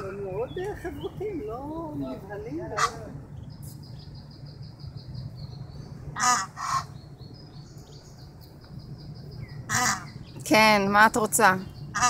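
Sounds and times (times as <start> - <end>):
goslings peeping: 2.0 - 5.0, 5.6 - 8.0, 9.3 - 10.4
goose harsh two-part call: 2.8 - 3.0.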